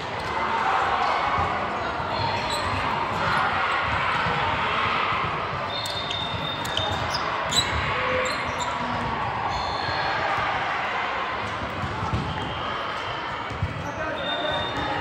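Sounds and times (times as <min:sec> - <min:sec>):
shoe squeaks: 0:02.1 - 0:03.4, 0:05.7 - 0:08.9, 0:13.8 - 0:15.0.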